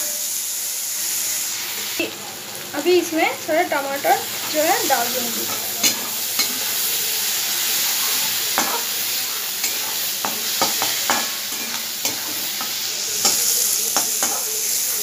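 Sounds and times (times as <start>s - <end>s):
vegetables sizzling in oil: 0.0s - 15.0s
metal spatula scraping pan: 4.3s - 7.0s, 9.6s - 14.5s.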